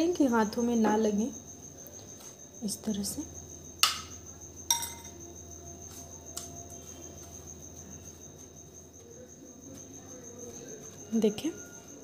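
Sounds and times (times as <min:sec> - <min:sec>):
cricket chirping: 0:00.0 - 0:12.0
spoon clinking glass bowl: 0:03.8 - 0:05.2.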